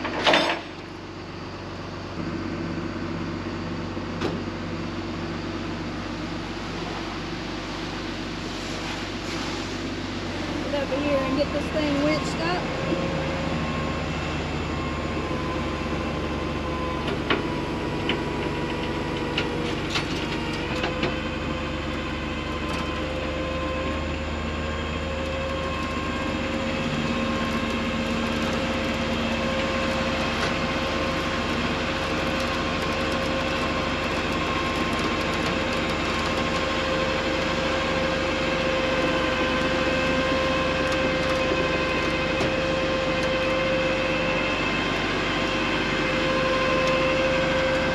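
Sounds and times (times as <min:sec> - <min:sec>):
engine humming: 0:00.0 - 0:47.9
winch whining: 0:10.3 - 0:47.9.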